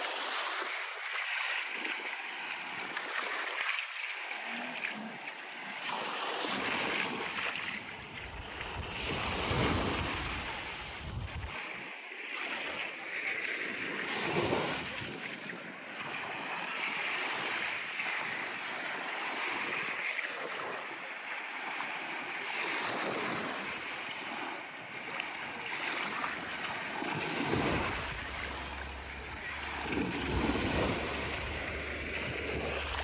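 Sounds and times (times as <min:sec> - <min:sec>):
small waves breaking on beach: 0:00.0 - 0:33.0
wind rumbling on microphone: 0:08.1 - 0:11.6.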